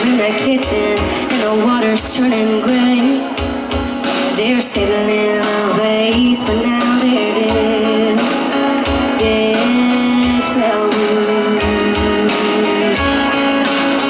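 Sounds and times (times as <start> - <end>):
electric guitar: 0.0 - 14.0
live country band ballad: 0.0 - 14.0
woman singing long notes: 9.1 - 13.6.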